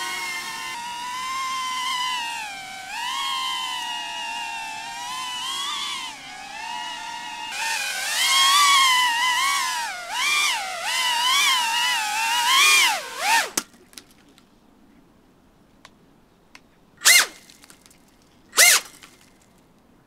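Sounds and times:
drone motors whining: 0.0 - 13.6.

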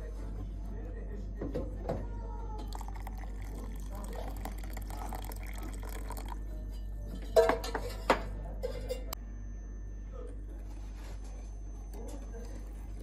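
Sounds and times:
water pouring into a glass bowl: 2.6 - 6.8.

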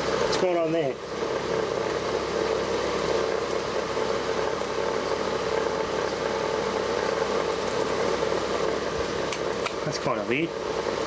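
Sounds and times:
electric fan whirring: 0.0 - 11.0.

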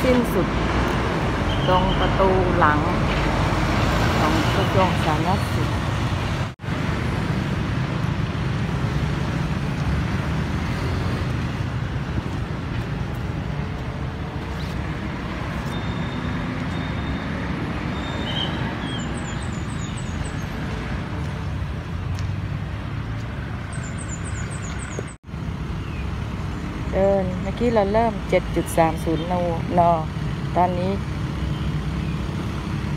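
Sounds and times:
road traffic noise: 0.0 - 32.9
bird chirping: 17.9 - 20.6, 23.7 - 25.2.

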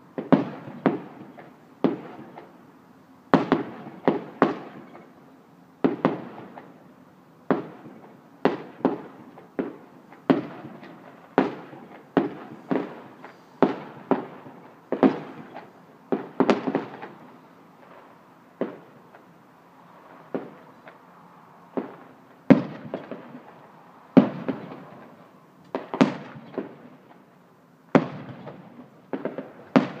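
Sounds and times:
fireworks bursting with bangs: 0.0 - 2.6, 3.3 - 5.2, 5.8 - 30.0
fireworks crackling trail: 0.0 - 30.0.

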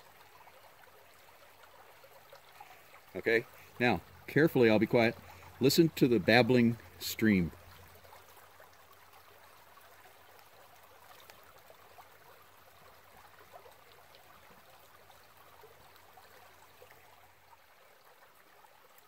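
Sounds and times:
creek babbling: 0.0 - 19.0.

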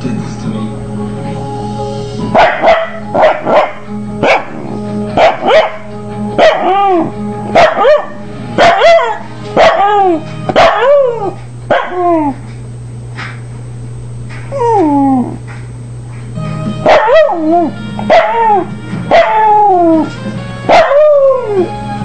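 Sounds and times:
television theme music: 0.0 - 11.4, 16.3 - 22.0
dog barking: 2.3 - 4.6, 5.2 - 12.4, 16.8 - 19.5, 20.7 - 21.4
dog howling: 5.2 - 12.4, 14.5 - 15.4, 16.9 - 21.8.

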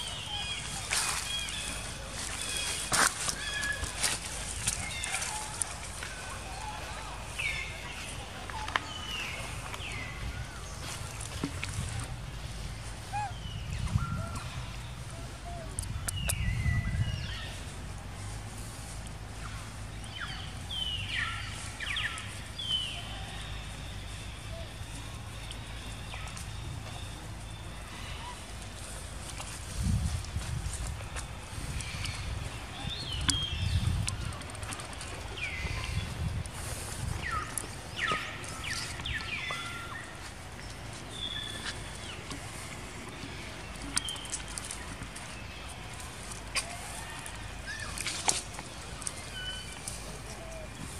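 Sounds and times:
low outdoor rumble: 0.0 - 50.9
young monkey crying: 13.0 - 14.5.

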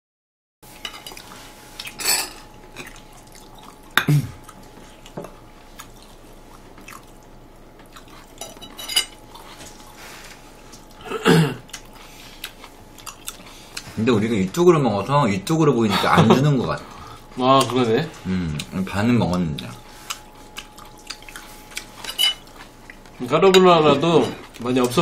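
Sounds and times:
utensils clinking on ceramic bowls: 1.9 - 2.9, 8.4 - 9.3, 21.8 - 22.6.

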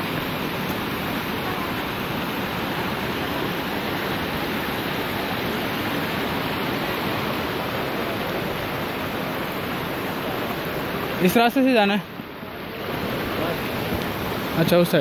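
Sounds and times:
mountain stream rushing: 0.0 - 15.0.

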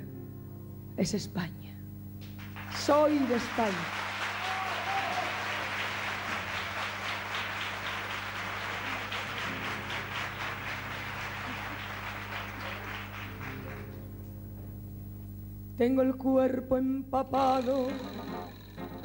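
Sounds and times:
steady low hum: 0.0 - 19.0
audience applauding: 2.2 - 14.2.

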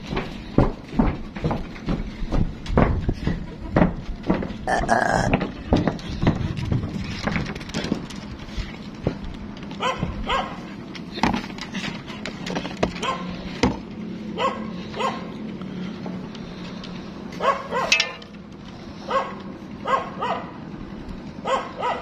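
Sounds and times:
dog yelping barks: 9.8 - 10.6, 13.0 - 13.3, 14.4 - 15.3, 17.4 - 18.2, 19.1 - 20.5, 21.4 - 22.0.

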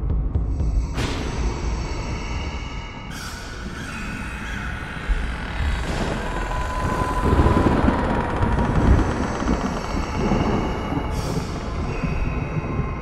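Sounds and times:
eerie sustained tones: 0.9 - 13.0
deep rumble: 3.6 - 13.0.

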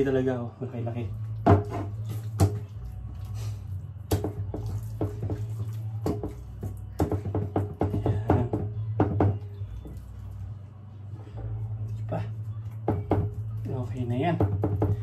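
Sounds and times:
raw steak squelching and slapping: 1.1 - 7.8.

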